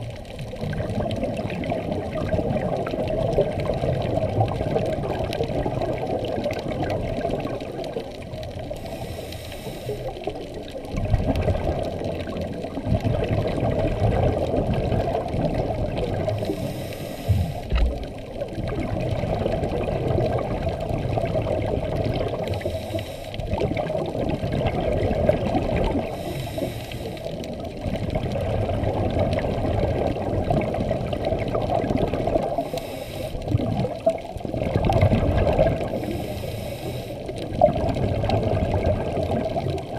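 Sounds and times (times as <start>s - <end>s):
exhaust bubbles burbling: 0.0s - 8.8s, 10.0s - 16.7s, 17.3s - 22.7s, 23.4s - 26.3s, 27.2s - 32.8s, 33.4s - 36.2s, 37.2s - 39.9s
regulator inhale hiss: 8.7s - 10.3s, 16.4s - 17.8s, 22.5s - 23.4s, 26.0s - 27.4s, 32.5s - 33.5s, 35.9s - 37.4s.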